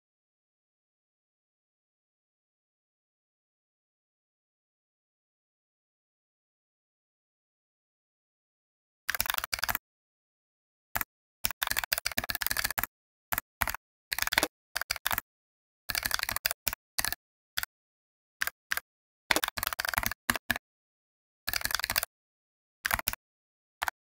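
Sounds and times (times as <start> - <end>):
computer keyboard typing: 9.1 - 9.8, 11.0 - 15.2, 15.9 - 17.7, 18.4 - 20.6, 21.5 - 22.1, 22.8 - 23.2.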